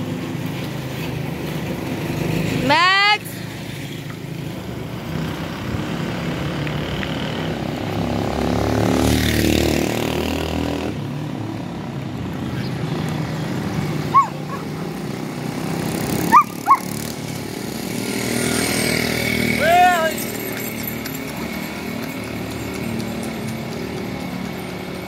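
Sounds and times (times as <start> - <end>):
vehicle engine humming: 10.2 - 25.0
dog yelping: 14.0 - 15.0, 16.2 - 17.0.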